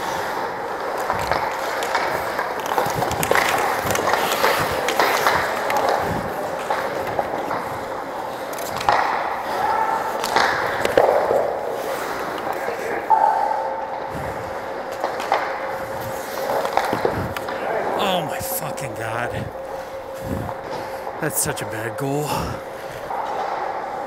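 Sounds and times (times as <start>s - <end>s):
hockey sticks and puck clacking: 0.0s - 13.3s, 14.9s - 17.6s.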